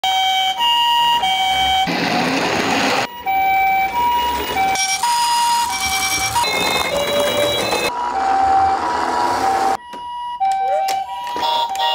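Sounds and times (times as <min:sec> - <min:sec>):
toy two-tone siren: 0:03.1 - 0:11.9.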